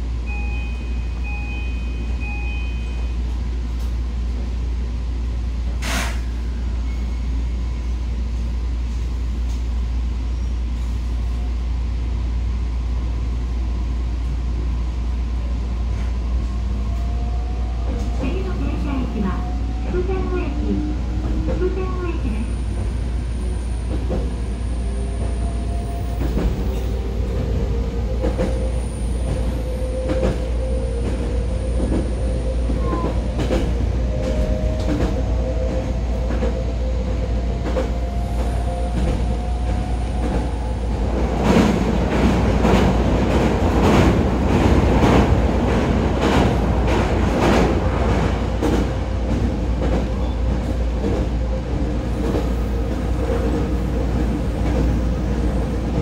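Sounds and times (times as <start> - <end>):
train wheels rumbling on rail: 0.0 - 56.0
rail-joint clacks: 28.2 - 36.6.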